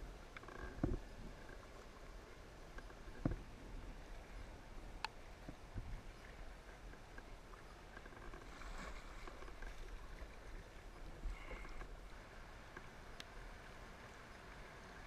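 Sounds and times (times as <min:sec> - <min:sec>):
paddle strokes in water: 0:00.7 - 0:15.0
creek water rushing and splashing: 0:03.4 - 0:15.0.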